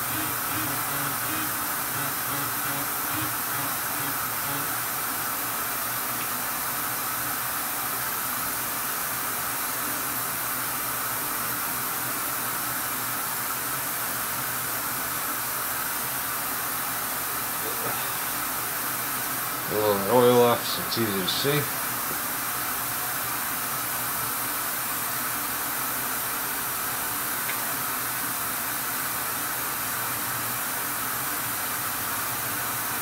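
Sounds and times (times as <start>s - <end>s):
lathe running hiss: 0.0s - 5.4s.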